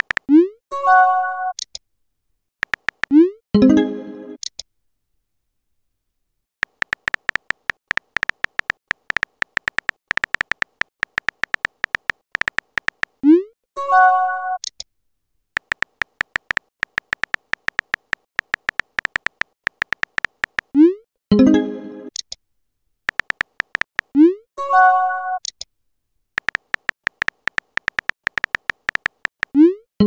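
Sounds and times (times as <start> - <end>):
keyboard typing ticks: 0.0 - 0.5, 2.6 - 3.3, 6.6 - 13.2, 15.6 - 20.9, 23.1 - 24.3, 26.4 - 29.8.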